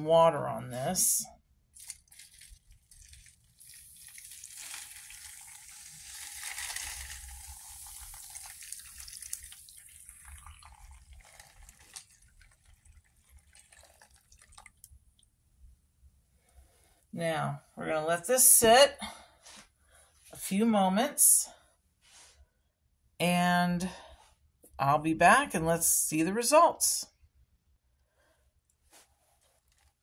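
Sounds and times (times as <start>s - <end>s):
water pouring and splashing: 1.8s - 15.0s.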